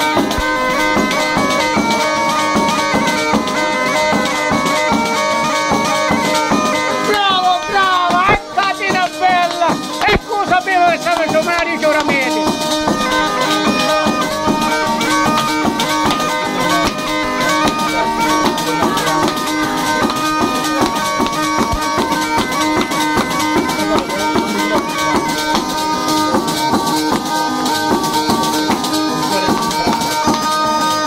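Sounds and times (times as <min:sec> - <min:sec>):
bagpipe playing a dance tune: 0:00.0 - 0:31.0
frame drum with jingles: 0:00.0 - 0:31.0.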